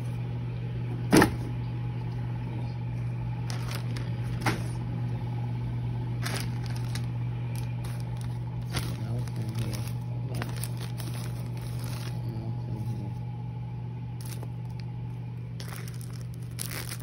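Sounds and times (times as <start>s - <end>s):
steady low hum: 0.0s - 17.0s
cardboard packaging rustling: 3.4s - 4.8s, 6.2s - 12.3s, 14.2s - 14.9s, 15.5s - 17.0s.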